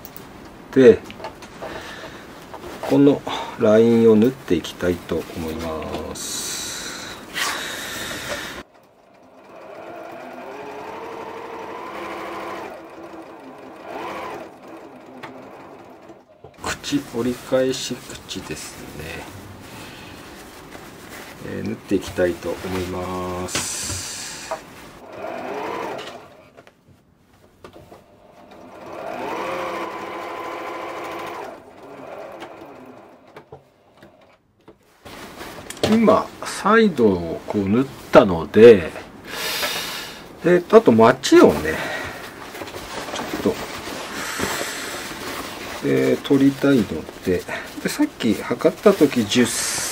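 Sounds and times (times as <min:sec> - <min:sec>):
sewing machine stitching: 0:08.1 - 0:17.5, 0:22.2 - 0:26.6, 0:28.0 - 0:34.3, 0:41.4 - 0:49.9
fabric rustling: 0:09.6 - 0:23.5, 0:24.2 - 0:33.3, 0:34.8 - 0:39.0, 0:41.3 - 0:49.9.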